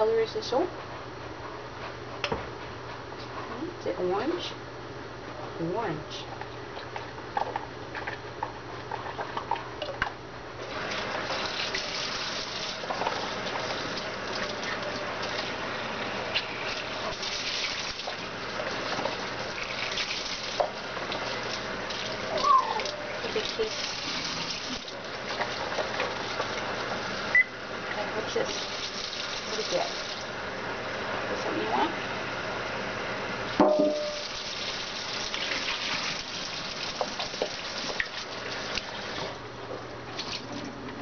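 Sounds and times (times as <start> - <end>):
faucet water splashing into container: 33.9 - 39.2.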